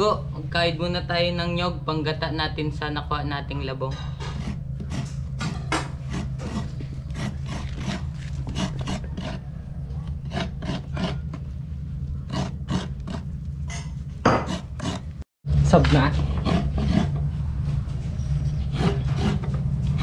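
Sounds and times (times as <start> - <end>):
coconut grater rasping: 4.2 - 11.5, 12.1 - 15.2, 15.9 - 20.0.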